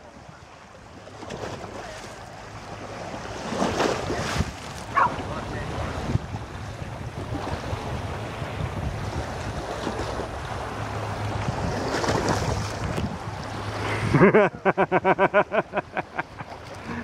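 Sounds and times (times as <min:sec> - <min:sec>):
wind buffeting microphone: 0:03.7 - 0:14.2.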